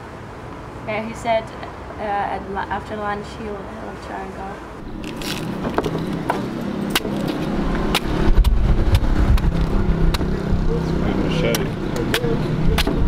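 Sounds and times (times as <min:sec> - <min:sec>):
road traffic rumble: 0:00.0 - 0:13.0
machete chopping coconut: 0:06.2 - 0:09.5.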